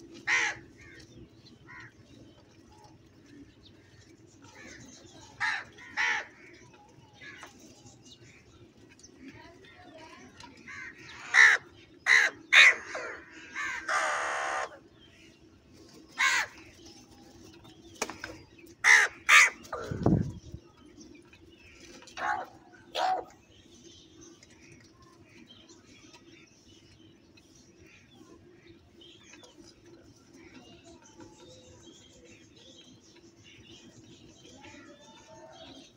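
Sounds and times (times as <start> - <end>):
crows cawing: 0.2 - 1.0, 1.7 - 1.9, 5.4 - 6.6, 10.7 - 14.8, 16.2 - 16.6, 18.8 - 20.0.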